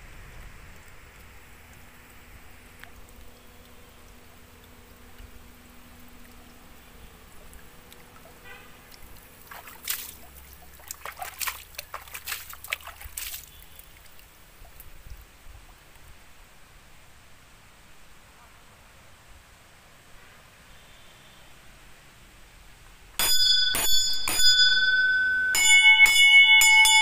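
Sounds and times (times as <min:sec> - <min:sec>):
low outdoor rumble: 0:00.0 - 0:17.9
faint steady hum: 0:00.0 - 0:26.0.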